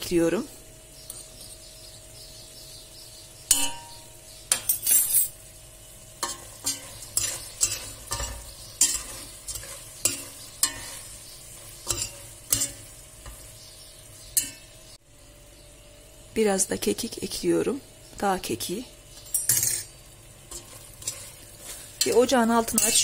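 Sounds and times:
meat sizzling: 0.0s - 23.0s
metal spoon scraping a pot: 4.5s - 5.4s, 6.2s - 13.4s, 19.2s - 23.0s.

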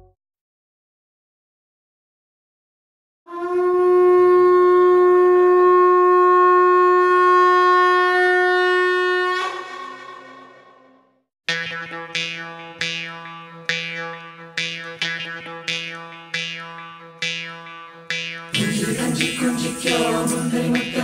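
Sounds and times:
conch shell blown: 3.3s - 11.0s.

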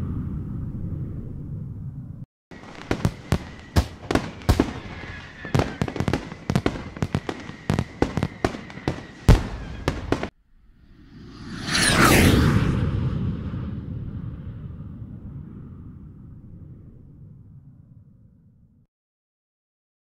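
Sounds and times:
low rumble: 0.0s - 2.3s, 6.0s - 18.8s
fireworks bangs and crackles: 2.5s - 10.4s
faint steady whistle: 2.6s - 10.3s.

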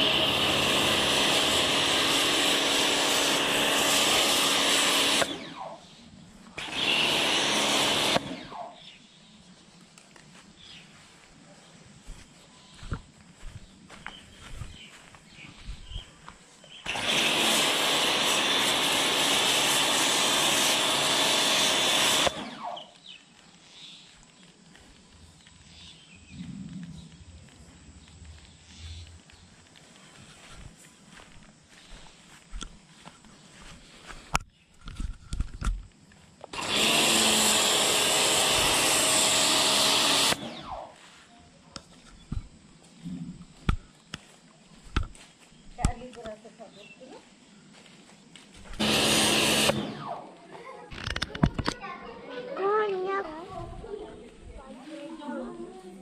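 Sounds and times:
pressure washer spraying hiss: 0.0s - 5.3s
pressure washer spraying: 0.0s - 5.4s, 6.6s - 8.4s, 16.9s - 22.8s, 36.5s - 41.0s, 48.8s - 50.0s
motor hum: 0.0s - 8.8s, 12.8s - 23.2s, 36.4s - 41.0s, 48.6s - 50.4s.

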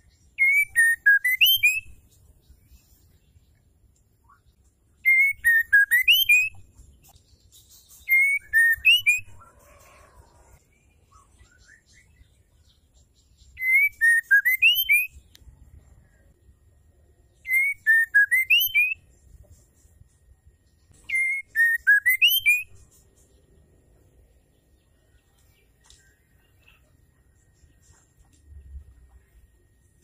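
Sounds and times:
bird whistled song phrase: 0.4s - 2.0s, 4.2s - 6.6s, 7.8s - 9.4s, 13.5s - 15.2s, 17.4s - 19.0s, 21.0s - 22.8s.

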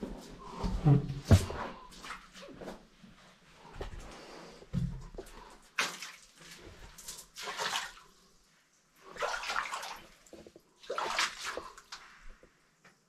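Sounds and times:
water splashing underfoot: 4.8s - 8.3s, 9.0s - 12.4s.

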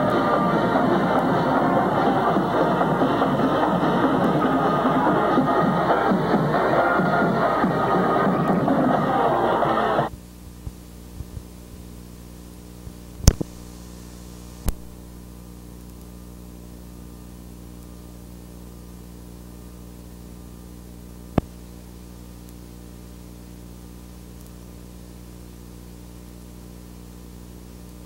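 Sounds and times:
mains hum: 0.0s - 28.0s
faint hiss: 9.2s - 28.0s.

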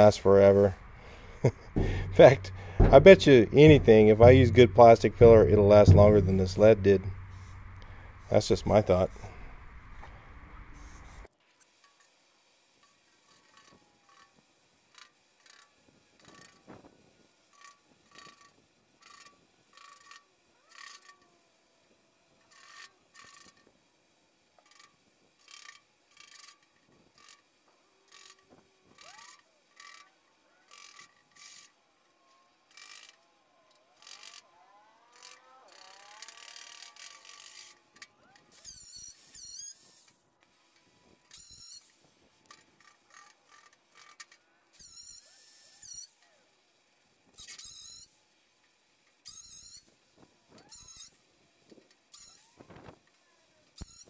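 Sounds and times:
steady hiss: 0.0s - 20.3s
hand tools striking steel panel: 0.7s - 10.4s
warbling high squeaks: 38.5s - 40.1s.

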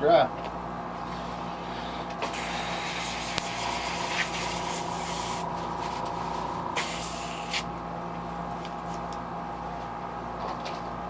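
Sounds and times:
steady background hum: 0.0s - 11.0s
airbrush spraying hiss: 2.2s - 6.0s, 6.7s - 7.7s.

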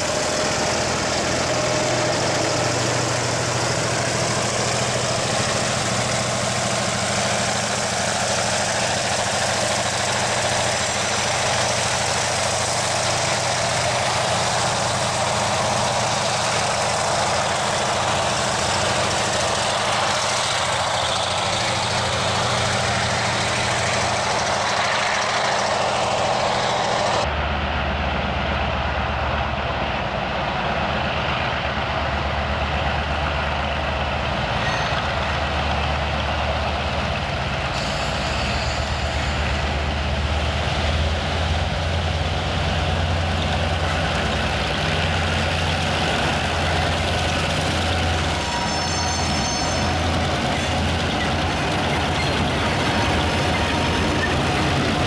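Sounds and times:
deep diesel engine hum: 0.0s - 55.0s
diesel locomotive engines running: 0.0s - 55.0s.

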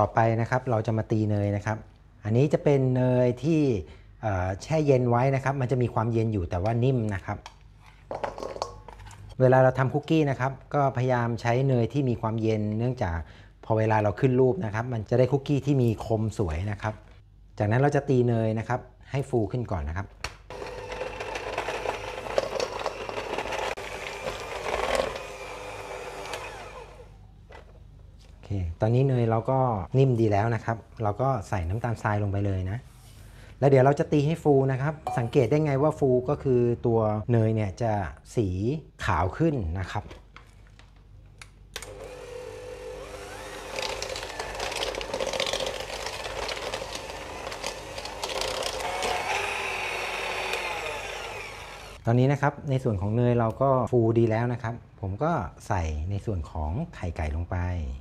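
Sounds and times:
electric hand mixer whining: 20.5s - 27.2s, 41.8s - 52.0s.

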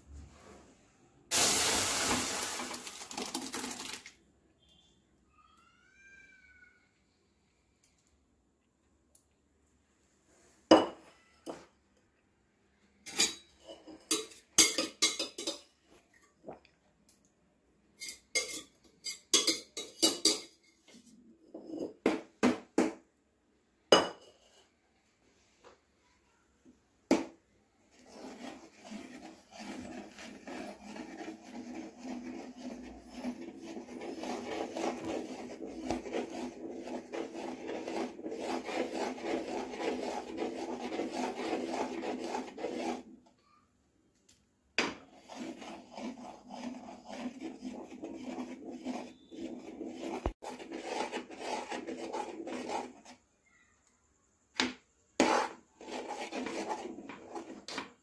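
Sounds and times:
spoon stirring jam in a pan: 13.2s - 21.2s, 27.1s - 43.2s, 44.8s - 58.0s.

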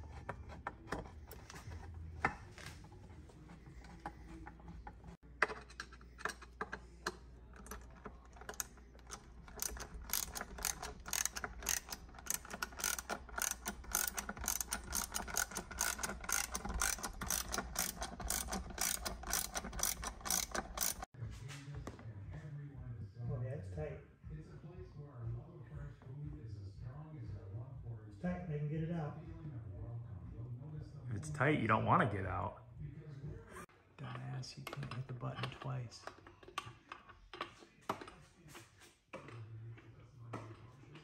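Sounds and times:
ratchet wrench clicking: 7.6s - 21.1s.

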